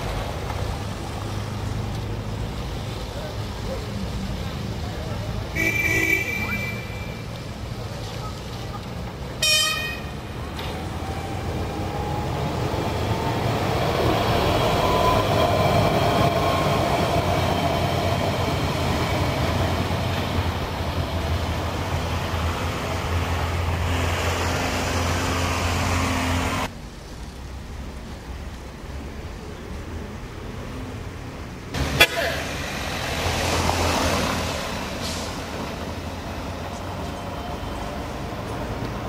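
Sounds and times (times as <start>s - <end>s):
tram running past: 0.0s - 39.0s
tram horn blast: 9.4s - 10.3s.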